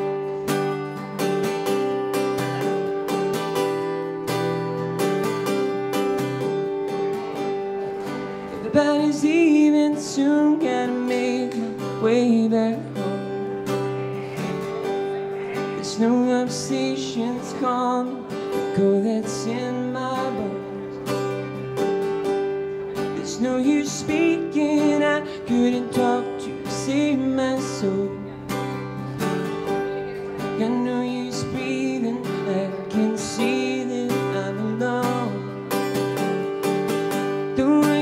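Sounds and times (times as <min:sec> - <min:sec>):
acoustic guitar strumming: 0:00.0 - 0:38.0
man singing: 0:08.4 - 0:21.5, 0:23.0 - 0:38.0.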